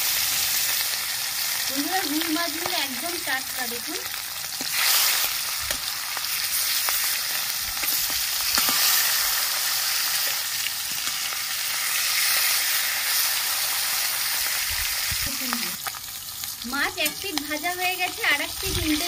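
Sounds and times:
fish sizzling in hot oil: 0.0 - 19.0
metal spatula tapping pan: 17.0 - 17.5.

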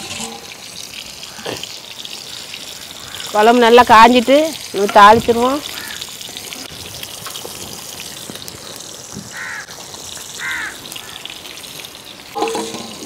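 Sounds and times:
crow cawing: 3.0 - 3.4, 5.6 - 6.1, 9.3 - 9.7, 10.3 - 11.3.

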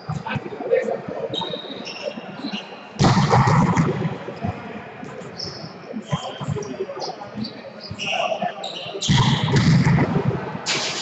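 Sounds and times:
loud burst of noise: 9.2 - 11.0.

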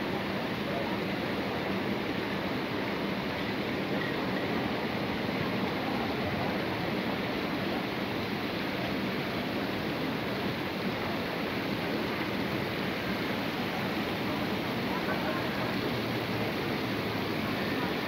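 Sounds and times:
fountain water cascading into pool: 0.0 - 18.0.

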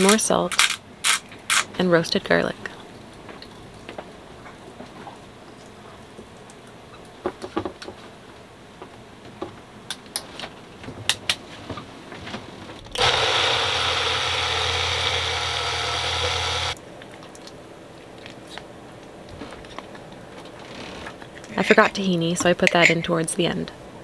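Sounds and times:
blender motor running: 13.0 - 16.8.

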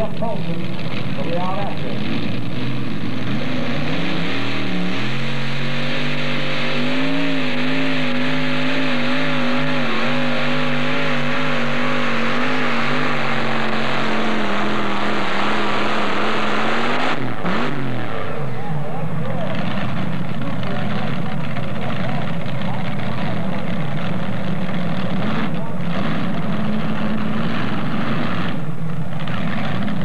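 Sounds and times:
tractor engine at full throttle: 0.0 - 30.0.

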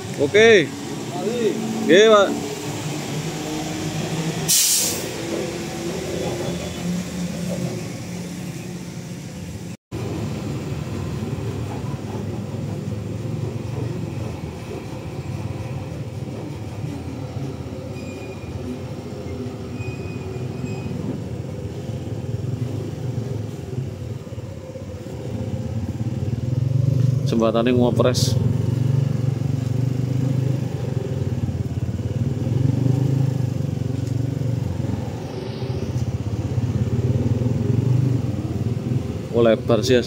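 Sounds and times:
short sharp hiss: 4.5 - 5.2.

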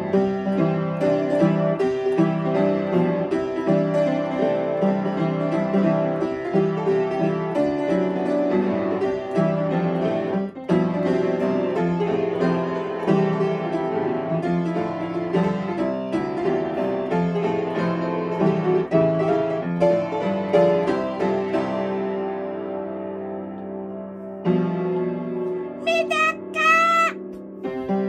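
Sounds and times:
upright piano playing: 0.0 - 28.0.

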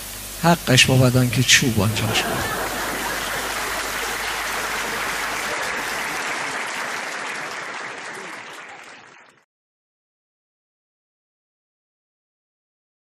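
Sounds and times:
audience applauding: 0.4 - 9.4.

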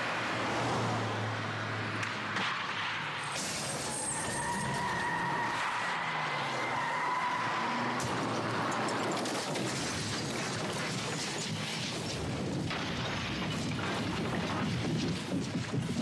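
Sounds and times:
car crashing: 6.9 - 14.2.

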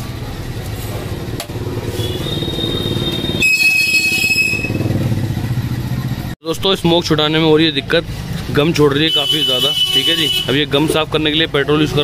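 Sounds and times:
engine running: 0.0 - 6.4.

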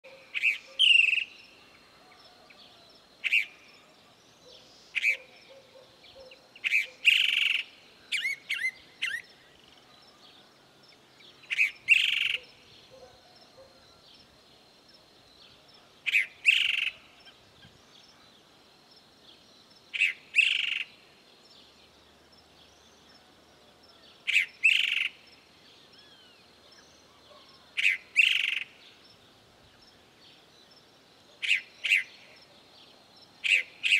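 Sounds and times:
mockingbird singing: 0.0 - 1.6, 4.4 - 9.4, 11.3 - 13.8, 16.0 - 17.2, 24.1 - 25.2, 27.0 - 28.8, 31.4 - 32.6, 33.4 - 33.9.

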